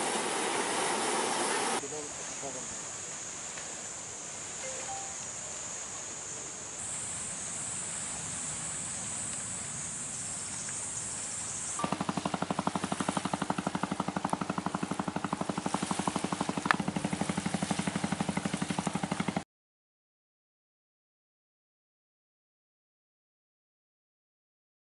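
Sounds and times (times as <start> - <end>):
steady hiss: 0.0 - 16.5
small boat engine chugging: 11.7 - 19.4.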